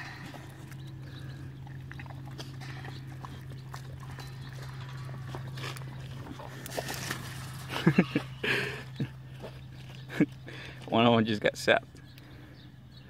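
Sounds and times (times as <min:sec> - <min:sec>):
dogs sniffing: 0:00.0 - 0:10.9
steady low hum: 0:00.0 - 0:13.0
scuffs on dry dirt: 0:02.3 - 0:11.5.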